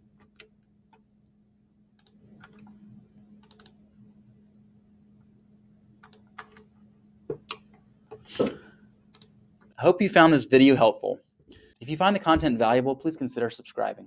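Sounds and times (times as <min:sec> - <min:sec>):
faint steady hum: 0:00.0 - 0:14.0
mouse and keyboard clicks: 0:03.4 - 0:03.8, 0:06.0 - 0:06.7.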